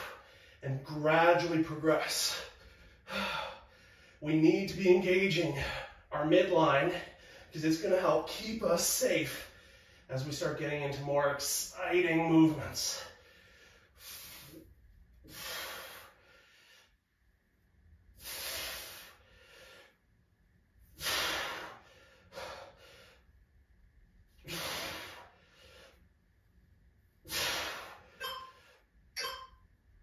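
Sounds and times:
man exhaling forcefully: 13.5s - 16.7s, 18.2s - 19.9s, 20.9s - 23.2s, 24.4s - 26.0s, 27.2s - 28.7s.

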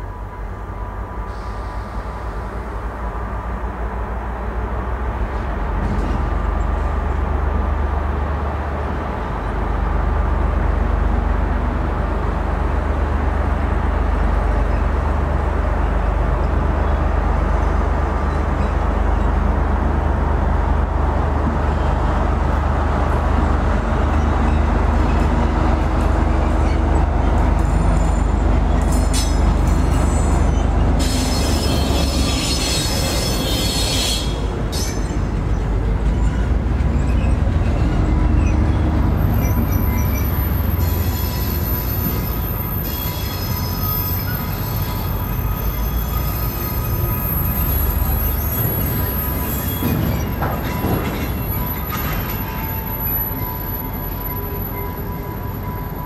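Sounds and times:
diesel locomotive rumbling: 0.0s - 56.0s
wheels squealing on rails: 1.1s - 3.0s, 13.6s - 56.0s.

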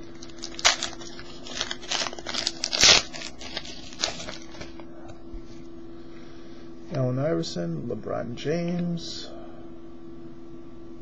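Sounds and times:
foil wrapper tearing and crinkling: 0.1s - 4.8s.

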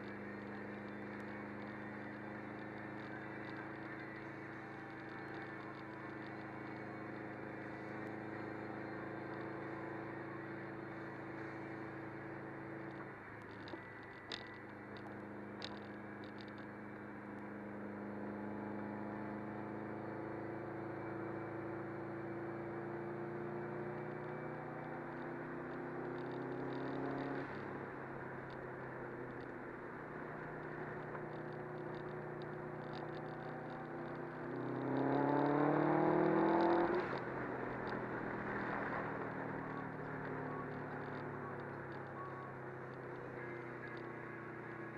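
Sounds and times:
car engine hum in cabin: 0.0s - 44.9s
road noise: 0.0s - 44.9s.

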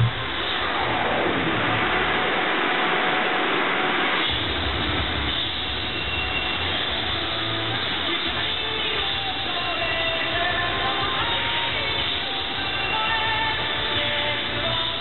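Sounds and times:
low rumble: 0.0s - 5.2s
loud rushing sound effect: 0.0s - 8.1s.

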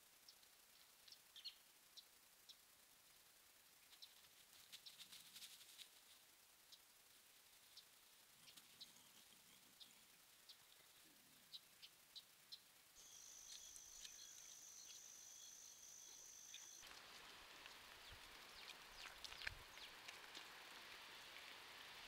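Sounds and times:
insect trilling: 6.6s - 20.0s.

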